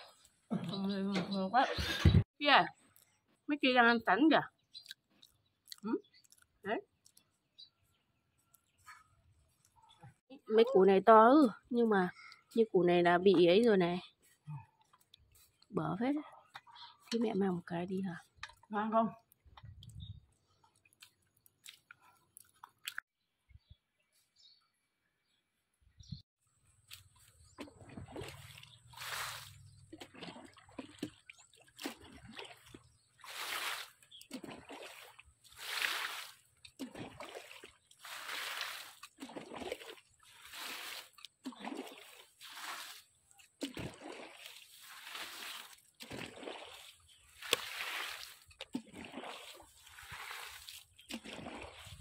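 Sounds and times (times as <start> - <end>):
water splashing: 26.9 - 52.0.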